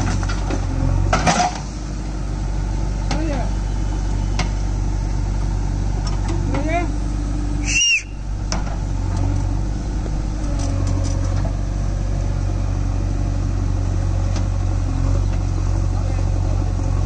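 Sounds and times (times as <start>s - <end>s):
diesel engine drone: 0.0s - 17.0s
brief high squeal: 7.6s - 8.3s.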